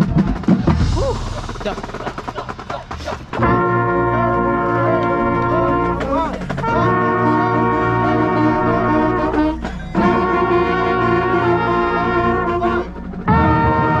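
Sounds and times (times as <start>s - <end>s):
marching band brass chords: 0.0s - 14.0s
loud trumpet: 3.2s - 14.0s.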